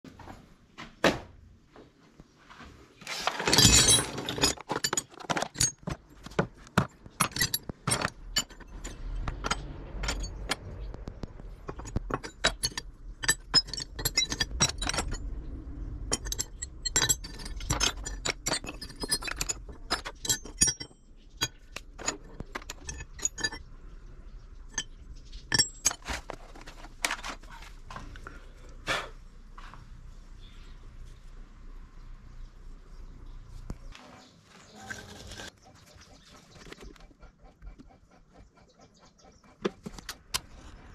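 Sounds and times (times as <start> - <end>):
scrap steel clinking and clattering: 3.0 - 23.8, 24.6 - 28.4.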